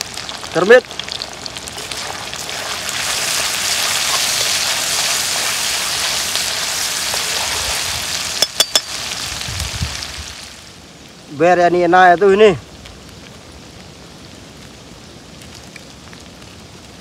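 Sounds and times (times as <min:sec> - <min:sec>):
food sizzling in oil: 0:00.0 - 0:10.8.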